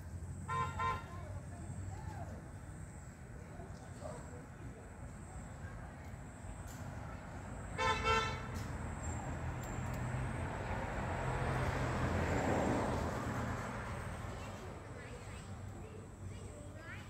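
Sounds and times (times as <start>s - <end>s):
road noise: 0.0s - 17.0s
vehicle horn tooting: 0.5s - 1.2s, 7.8s - 8.6s
passing vehicle engine: 5.6s - 16.9s.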